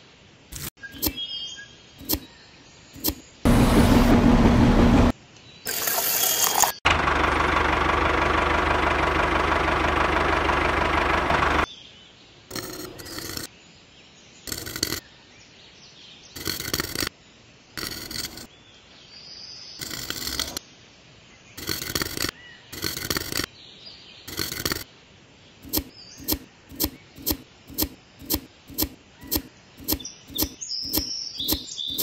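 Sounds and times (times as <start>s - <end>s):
shovel scraping sand: 0.5s - 1.2s, 2.0s - 2.3s, 12.5s - 13.5s, 19.8s - 20.6s, 24.3s - 24.8s, 25.6s - 32.0s
small electric motor running: 12.5s - 13.5s.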